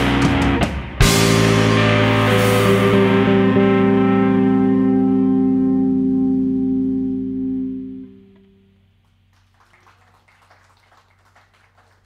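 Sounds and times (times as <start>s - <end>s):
electric guitar and bass chord: 0.0s - 9.0s
faint scattered clapping: 9.0s - 12.0s.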